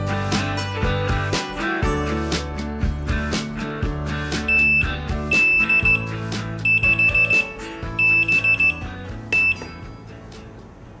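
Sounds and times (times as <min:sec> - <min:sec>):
kitchen timer alarm beeping: 0:04.4 - 0:09.8.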